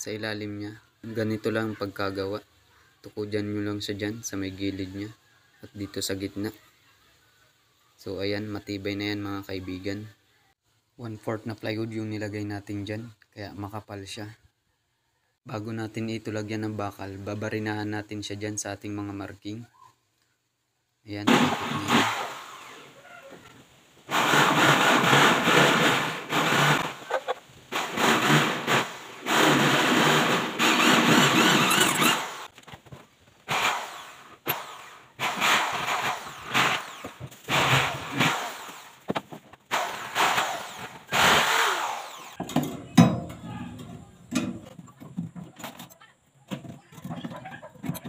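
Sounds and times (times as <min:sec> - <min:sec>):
electric drill boring plywood: 0:21.3 - 0:23.0, 0:24.1 - 0:27.1, 0:27.7 - 0:32.5, 0:33.5 - 0:39.1, 0:39.7 - 0:42.4.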